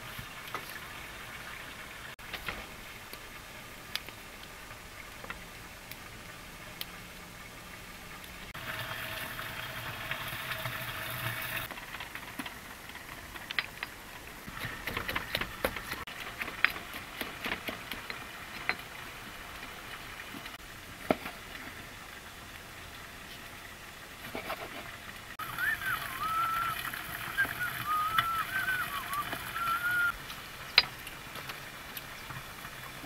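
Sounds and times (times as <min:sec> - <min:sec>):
pot boiling hiss: 0:00.0 - 0:33.0
pestle pounding in stone mortar: 0:14.5 - 0:18.1.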